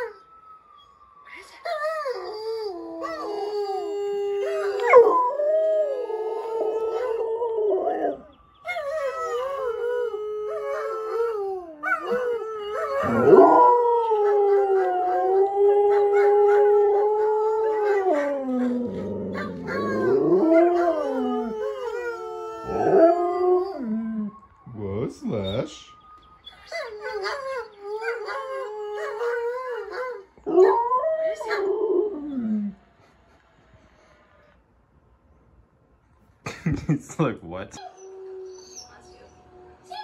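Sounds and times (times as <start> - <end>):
dogs howling: 2.1 - 32.8, 37.8 - 40.0.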